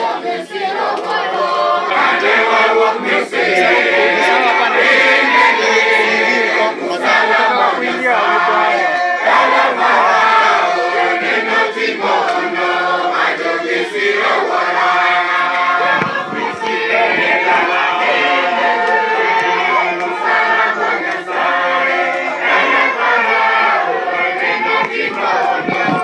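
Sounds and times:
congregation singing a hymn: 0:00.0 - 0:26.0.

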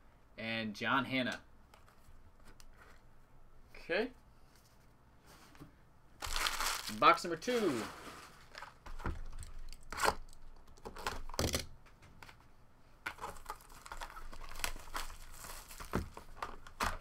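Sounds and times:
plastic wrap tearing and crinkling: 0:06.2 - 0:11.5, 0:13.1 - 0:17.0.

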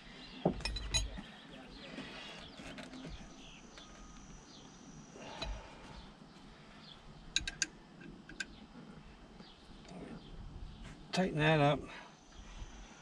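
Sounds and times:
sharp metal clicks: 0:07.4 - 0:08.6.

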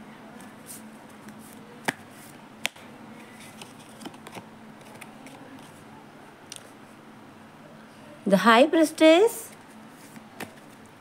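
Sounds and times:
cards rustling: 0:03.3 - 0:05.8.

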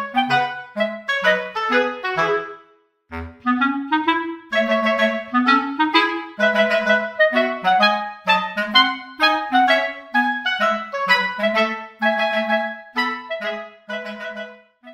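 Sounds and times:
clarinet tune: 0:00.0 - 0:14.9.

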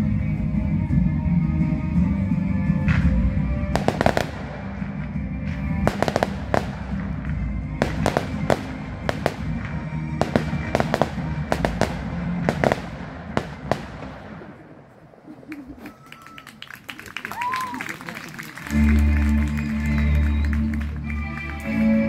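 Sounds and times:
music playing: 0:00.0 - 0:14.5, 0:18.0 - 0:22.0
fireworks bangs and crackling: 0:02.9 - 0:14.9.

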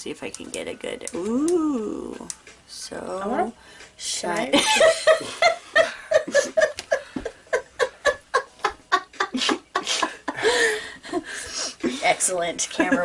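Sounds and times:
people laughing: 0:04.6 - 0:11.2.

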